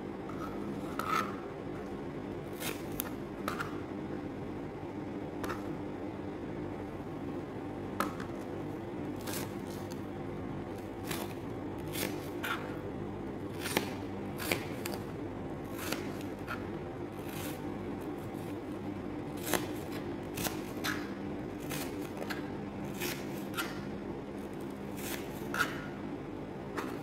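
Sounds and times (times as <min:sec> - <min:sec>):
knife cutting on a plastic board: 0:00.3 - 0:01.4, 0:02.5 - 0:03.8, 0:11.0 - 0:12.8, 0:15.6 - 0:18.6, 0:19.4 - 0:23.8, 0:24.9 - 0:26.0.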